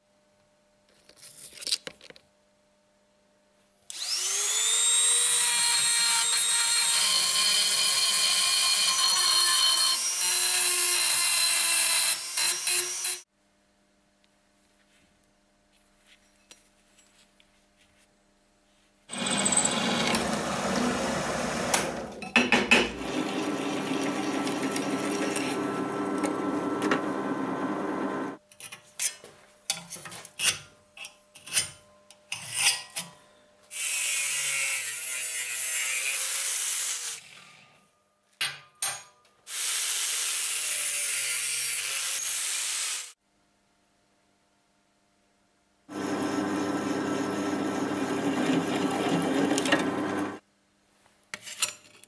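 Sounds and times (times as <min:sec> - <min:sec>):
power tool on steel: 0:03.9 - 0:13.2, 0:19.1 - 0:22.2, 0:45.9 - 0:50.4
angle grinder grinding steel: 0:19.1 - 0:22.2, 0:23.0 - 0:28.4, 0:45.9 - 0:50.4.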